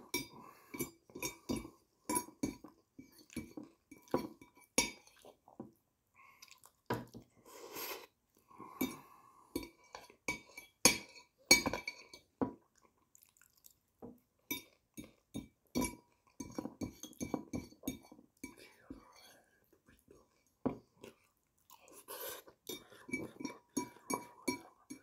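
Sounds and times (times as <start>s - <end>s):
cutlery clinking on a plate: 0.2s - 5.2s, 9.6s - 12.3s, 14.5s - 18.6s.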